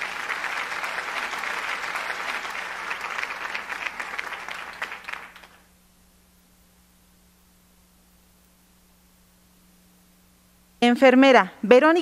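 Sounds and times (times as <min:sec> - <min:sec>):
audience applauding: 0:00.0 - 0:05.7
faint low hum: 0:00.0 - 0:12.0.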